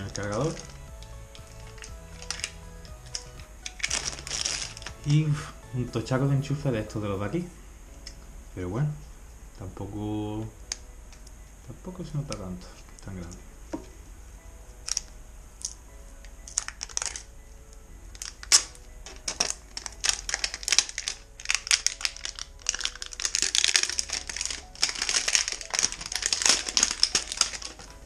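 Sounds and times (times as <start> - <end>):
plastic packaging crinkling: 0.0 - 5.2, 16.5 - 17.3, 18.2 - 28.0
faint background music: 0.0 - 28.0.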